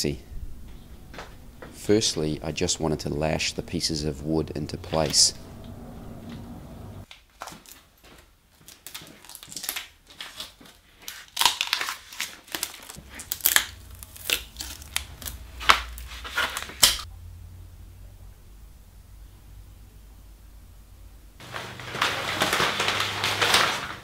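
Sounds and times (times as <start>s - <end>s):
plastic sheeting crinkling: 7.0s - 17.1s, 21.4s - 24.0s
tape tearing off roll: 8.9s - 17.1s, 21.4s - 24.0s.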